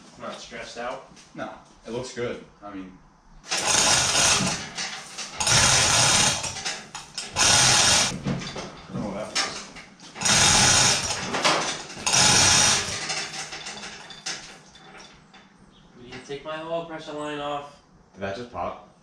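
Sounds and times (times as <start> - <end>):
hoist chain rattling: 3.5 - 8.8, 9.4 - 15.6.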